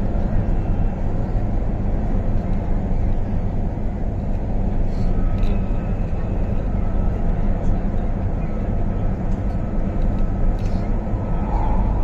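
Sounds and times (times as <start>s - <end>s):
train rumble from inside: 0.0s - 12.0s
faint high tone: 11.3s - 12.0s.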